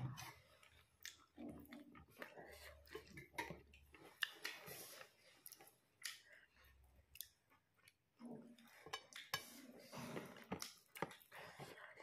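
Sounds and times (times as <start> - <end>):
chewing with lip smacks: 0.1 - 9.4.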